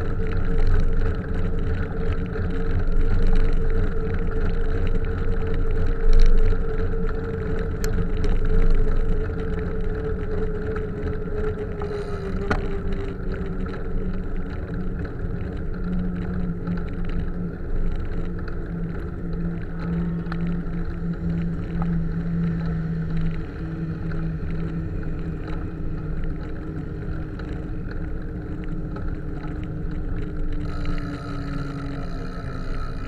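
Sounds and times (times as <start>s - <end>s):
wind noise on microphone: 0.0s - 33.0s
motor vehicle engines humming: 10.8s - 13.8s, 19.7s - 33.0s.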